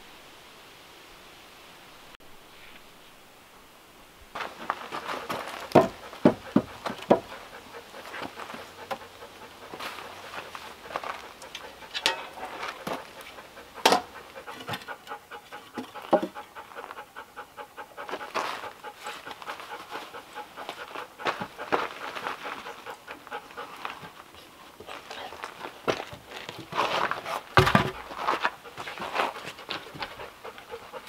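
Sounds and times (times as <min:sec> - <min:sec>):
dog panting: 0:04.4 - 0:31.0
sharp knocks: 0:05.7 - 0:07.3.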